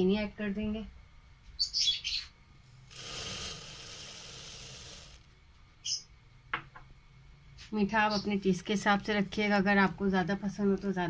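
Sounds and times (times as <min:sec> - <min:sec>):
sugar pouring hiss: 0:02.7 - 0:05.3.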